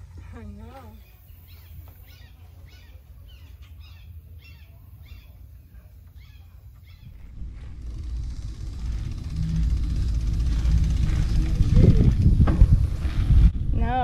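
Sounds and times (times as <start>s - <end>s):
bird chirping: 0.8s - 13.0s
low steady rumble: 6.8s - 14.0s.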